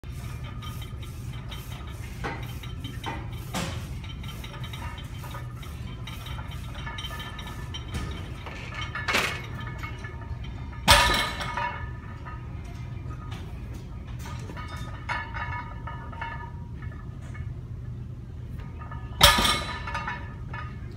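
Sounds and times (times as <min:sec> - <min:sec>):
weight plates clinking: 0:00.1 - 0:17.6, 0:18.6 - 0:20.9.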